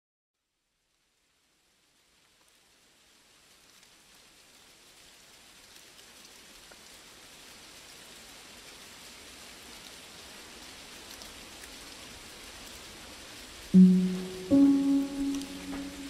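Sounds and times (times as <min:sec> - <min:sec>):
rain falling: 0:00.8 - 0:16.0
raindrop ticks: 0:13.7 - 0:16.0.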